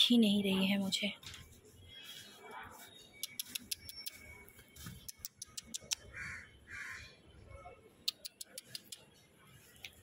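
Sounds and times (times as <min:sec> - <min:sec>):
faint sharp clicks: 0:08.0 - 0:09.1.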